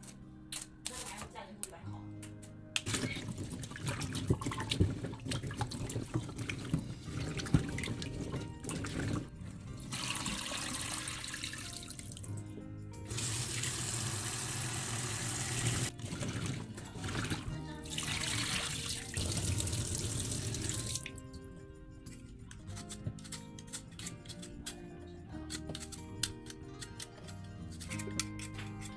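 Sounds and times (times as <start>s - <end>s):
background music: 0.0s - 28.9s
tap water running into sink: 9.9s - 12.1s, 13.1s - 21.2s.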